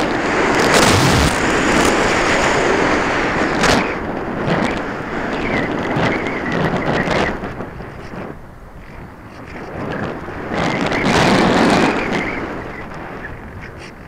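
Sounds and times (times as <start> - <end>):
wind buffeting camera: 0.0 - 14.0.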